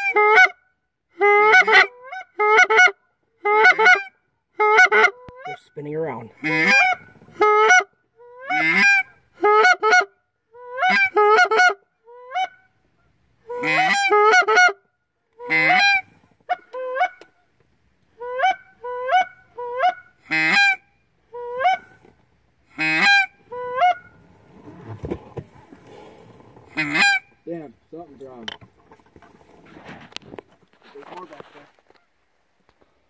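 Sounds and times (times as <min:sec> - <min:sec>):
goose call honks and clucks: 0:00.0 - 0:14.8, 0:15.4 - 0:17.5, 0:18.1 - 0:22.1, 0:22.7 - 0:25.4, 0:26.5 - 0:27.6.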